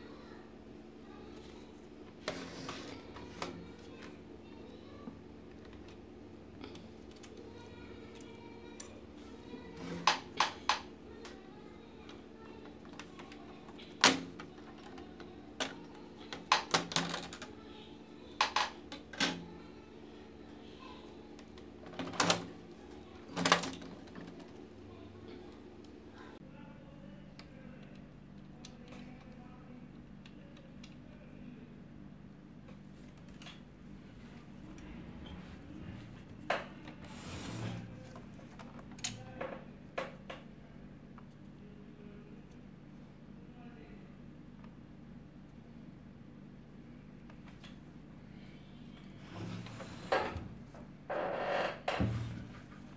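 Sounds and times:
faint steady hum: 0:00.0 - 0:52.9
plastic sliding scrape: 0:02.2 - 0:03.5, 0:37.0 - 0:37.9.

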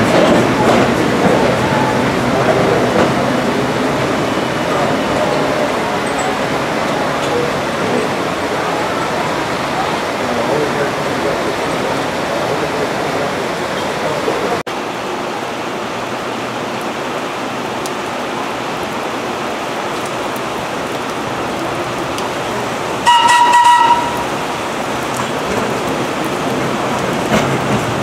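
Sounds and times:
heavy rain hiss: 0:00.0 - 0:28.0
subway train approaching: 0:00.0 - 0:28.0
train horn blast: 0:23.0 - 0:24.4.

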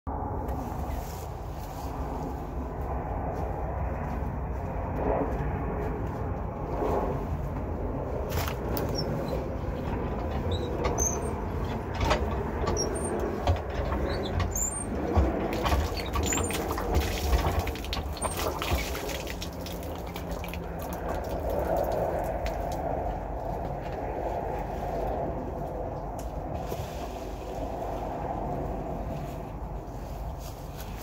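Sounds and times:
hand pump clanking and squeaking: 0:08.5 - 0:20.5
water splashing on ground: 0:14.6 - 0:23.0.

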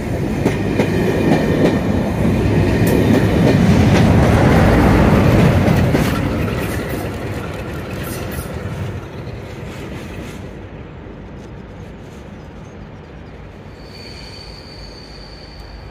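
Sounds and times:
train rumble and wheel noise: 0:00.0 - 0:15.9
thin high whine: 0:13.7 - 0:15.9.

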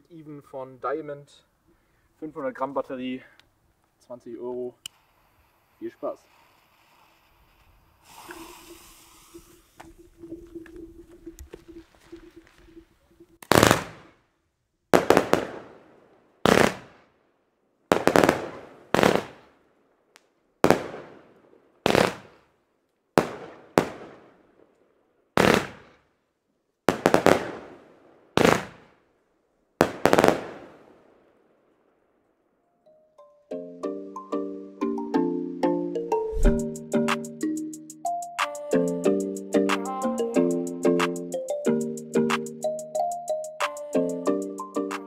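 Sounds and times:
firework bangs: 0:13.4 - 0:14.2, 0:14.9 - 0:17.1, 0:17.9 - 0:19.6, 0:20.6 - 0:22.4, 0:23.2 - 0:24.7, 0:25.4 - 0:26.0, 0:26.9 - 0:29.0, 0:29.8 - 0:31.4.

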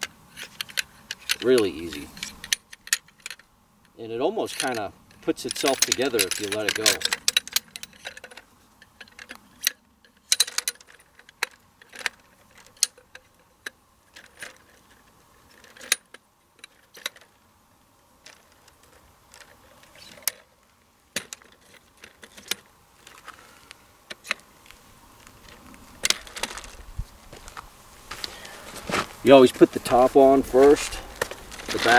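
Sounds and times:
chair poles clicking into sockets: 0:00.0 - 0:03.4, 0:04.5 - 0:14.6.

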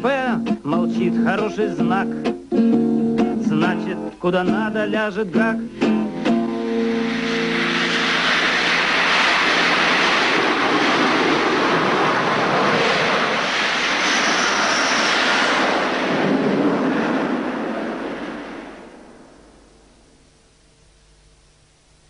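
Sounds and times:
jet engines roaring: 0:06.0 - 0:19.8.

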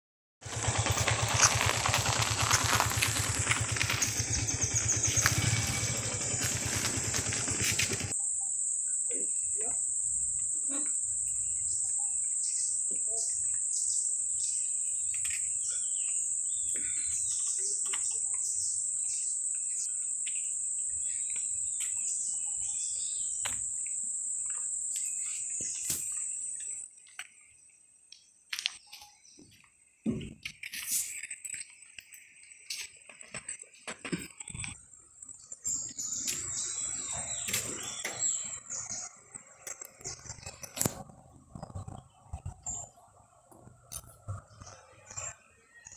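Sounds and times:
high-pitched insect drone: 0:00.5 - 0:27.8, 0:34.2 - 0:43.0
faint insect chirps: 0:00.6 - 0:33.8, 0:34.4 - 0:43.1.

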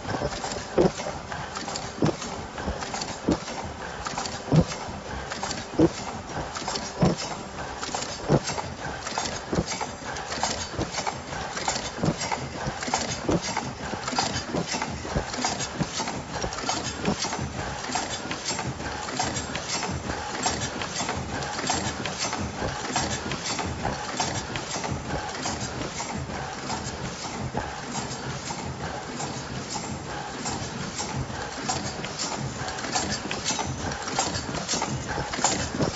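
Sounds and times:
heavy machine knock: 0:00.0 - 0:01.2, 0:01.8 - 0:04.8, 0:05.4 - 0:07.4, 0:08.0 - 0:15.8
machine clatter of rapid clicks: 0:00.0 - 0:35.9.

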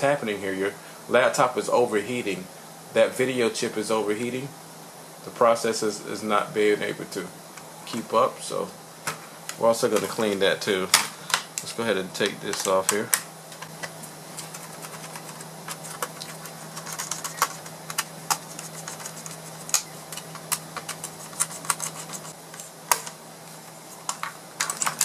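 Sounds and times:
laptop parts clicking and rattling: 0:12.5 - 0:23.2, 0:24.0 - 0:25.0.

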